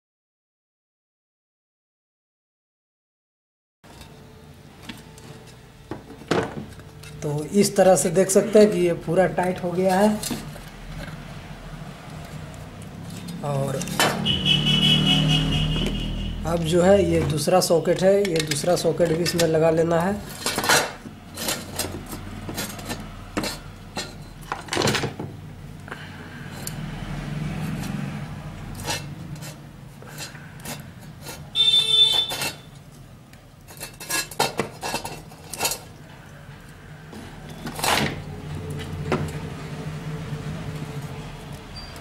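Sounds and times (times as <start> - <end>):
short high-pitched squeak: 31.5 - 32.8, 41.8 - 42.0.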